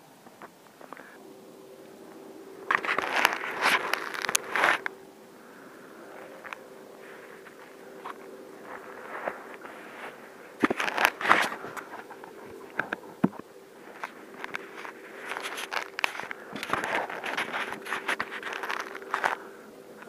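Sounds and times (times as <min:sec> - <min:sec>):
faint steady hum: 0:00.0 - 0:20.0
footsteps crunching icy snow: 0:02.7 - 0:04.9, 0:06.1 - 0:13.0, 0:13.8 - 0:19.4.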